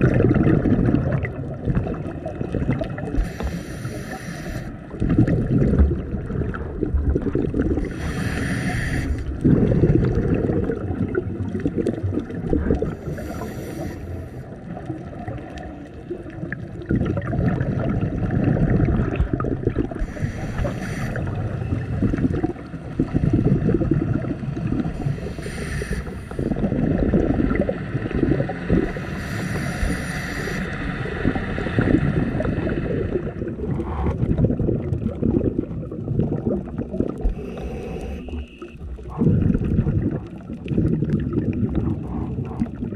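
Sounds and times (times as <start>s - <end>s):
gurgling exhaled bubbles: 0.0s - 42.9s
regulator inhale hisses: 3.2s - 4.9s, 7.8s - 9.3s, 13.0s - 14.6s, 20.0s - 21.4s, 25.0s - 26.5s, 28.9s - 31.1s, 37.3s - 38.8s.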